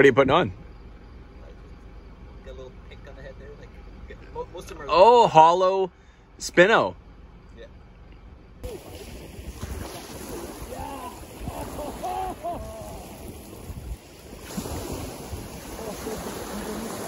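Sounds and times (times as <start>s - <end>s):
waves washing onto pebble beach: 8.6s - 17.0s
wind rushing over microphone: 8.6s - 17.0s.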